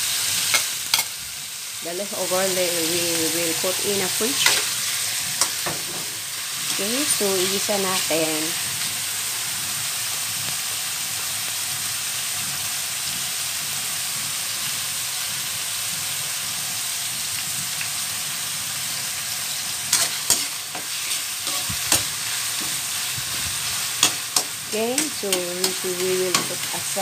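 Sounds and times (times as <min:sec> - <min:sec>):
food sizzling in hot oil: 0:00.0 - 0:27.0
metal spoon scraping wok: 0:03.7 - 0:07.4, 0:19.9 - 0:27.0.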